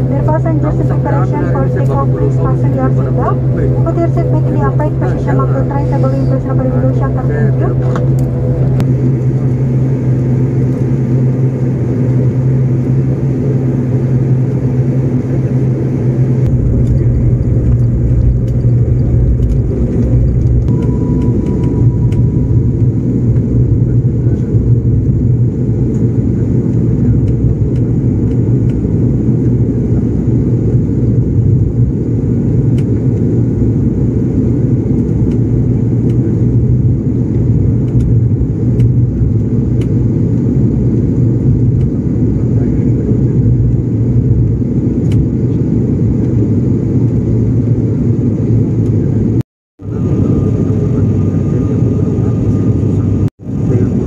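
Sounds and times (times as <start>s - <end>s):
turboprop engine drone in cabin: 0.0s - 54.0s.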